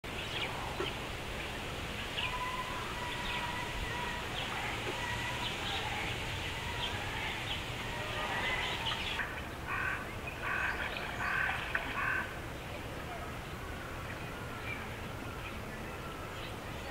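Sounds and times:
birds chirping: 0.1 - 16.9
harsh bird calls: 1.8 - 12.4.

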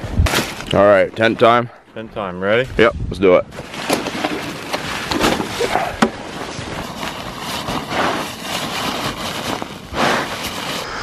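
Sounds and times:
tent fabric rustling: 3.5 - 11.0
snow crunching: 4.8 - 11.0.

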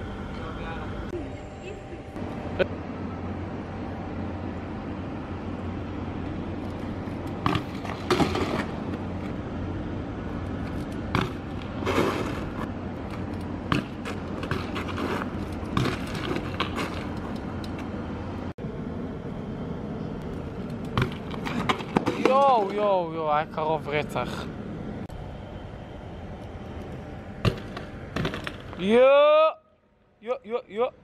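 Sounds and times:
low hum: 0.0 - 31.0
bike tyres rolling on asphalt: 5.2 - 18.5, 20.2 - 24.5, 26.6 - 29.0
bike clanks and thuds: 7.4 - 9.0, 10.6 - 17.4, 20.9 - 22.9, 27.4 - 28.8.

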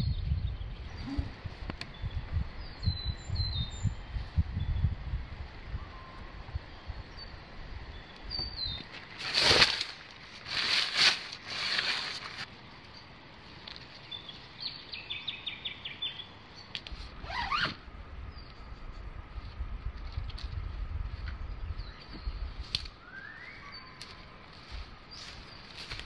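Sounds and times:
nylon tent fabric rustling: 9.0 - 12.5, 17.1 - 17.8
tent zipper zipping: 17.2 - 17.8
faint birds calling: 21.4 - 26.0.

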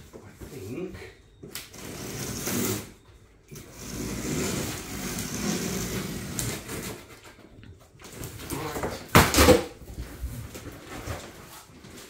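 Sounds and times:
box cutter slicing cardboard: 1.7 - 3.0, 3.6 - 7.2.

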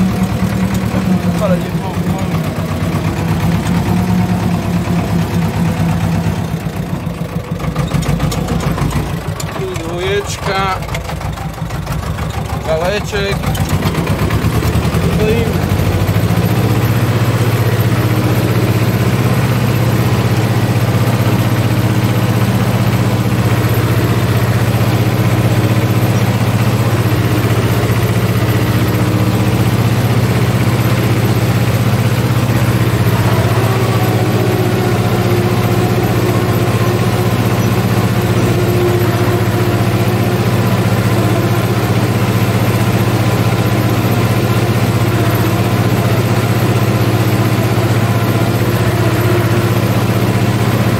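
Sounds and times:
tractor diesel engine running: 0.0 - 50.9.

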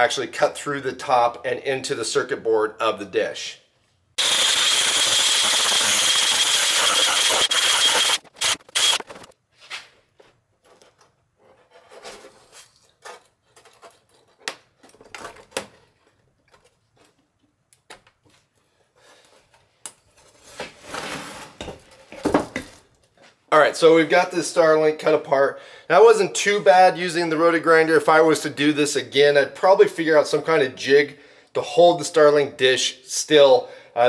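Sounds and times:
rotary grinder cutting plastic: 4.2 - 9.3
plastic clicks and scrapes: 10.6 - 17.3.

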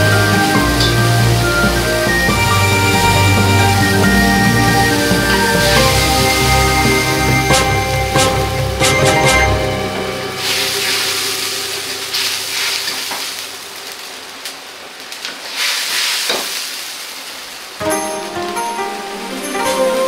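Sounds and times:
background music: 0.0 - 13.0, 17.8 - 20.0
stock hissing and bubbling in wok: 10.3 - 18.8.

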